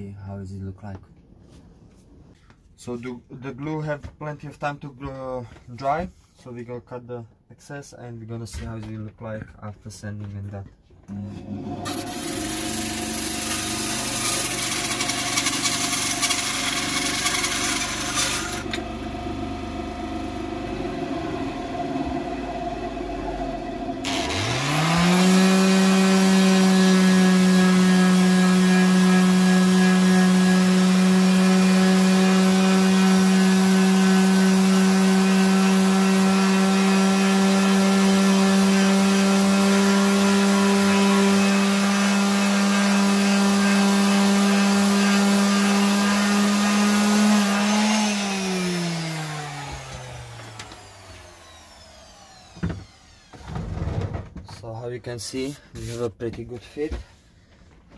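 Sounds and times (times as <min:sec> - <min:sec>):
bandsaw cutting wood: 0:11.1 - 0:21.9, 0:24.0 - 0:53.7
orbital sander humming: 0:11.9 - 0:53.4.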